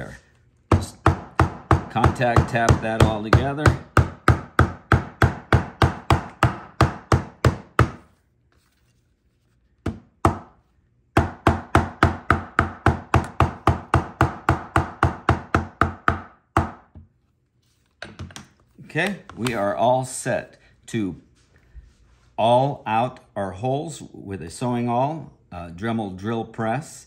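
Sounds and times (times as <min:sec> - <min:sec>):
hammer tapping leather: 0:00.7 - 0:08.0.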